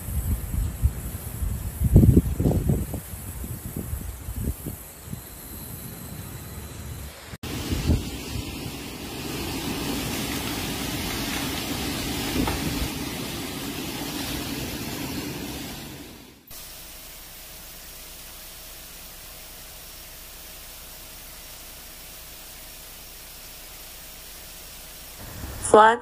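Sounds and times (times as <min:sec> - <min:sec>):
wind buffeting microphone: 0:00.0 - 0:16.1
storm wind and heavy rain: 0:00.0 - 0:25.7
steady hiss: 0:00.0 - 0:25.9.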